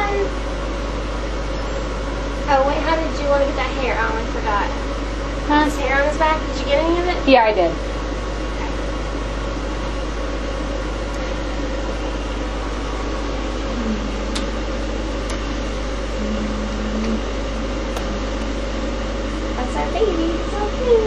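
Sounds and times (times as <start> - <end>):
low hum: 0.0 - 21.0
mechanical whir: 0.0 - 21.0
short low tones: 11.1 - 21.0.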